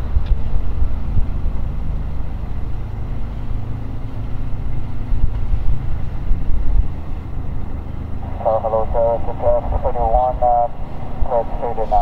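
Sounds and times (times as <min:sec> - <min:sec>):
jet engines rumbling at takeoff: 0:00.0 - 0:12.0.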